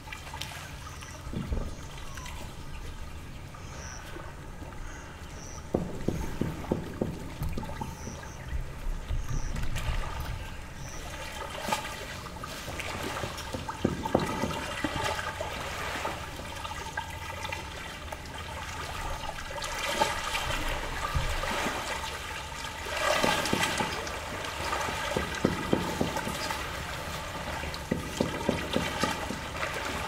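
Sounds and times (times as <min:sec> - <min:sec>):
waves lapping against shore: 0:00.0 - 0:30.0
sharp water splashes: 0:05.4 - 0:30.0.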